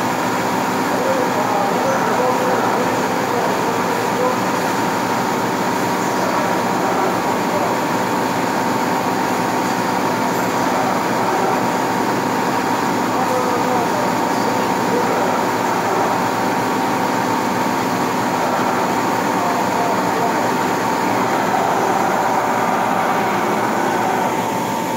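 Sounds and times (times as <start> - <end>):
constant high whine: 0.0 - 24.9
metal lathe running: 0.0 - 24.9.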